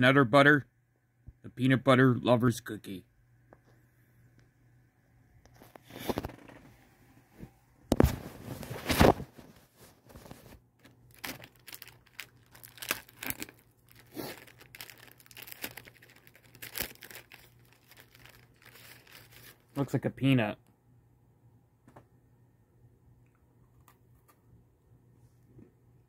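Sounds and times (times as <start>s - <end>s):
wrapper crinkling: 9.9s - 19.8s
plastic wrapper ripping: 10.2s - 19.8s.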